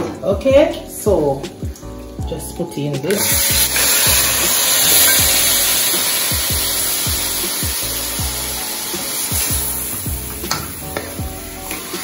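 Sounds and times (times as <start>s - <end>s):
meat sizzling in a pot: 3.1s - 12.0s
music with bass beat: 3.5s - 12.0s.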